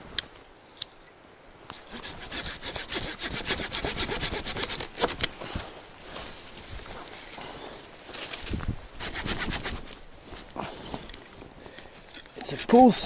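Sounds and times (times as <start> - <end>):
saw cutting a branch: 1.7 - 5.4, 9.0 - 10.0, 12.3 - 13.0.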